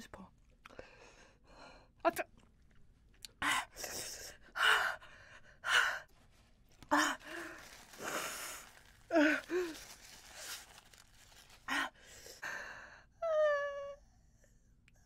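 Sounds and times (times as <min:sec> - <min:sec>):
woman gasping and sighing: 0:06.8 - 0:11.0
woman whimpering: 0:06.9 - 0:10.0, 0:13.2 - 0:14.0.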